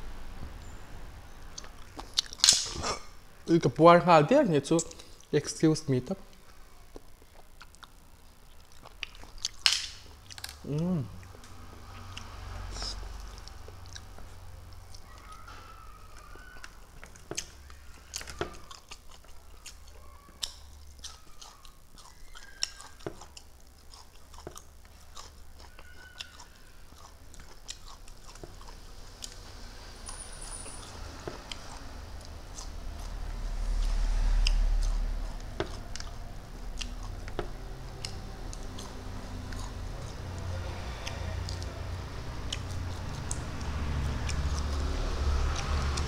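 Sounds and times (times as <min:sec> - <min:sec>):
chewing and crunching: 0:01.4 - 0:03.1, 0:06.3 - 0:46.0.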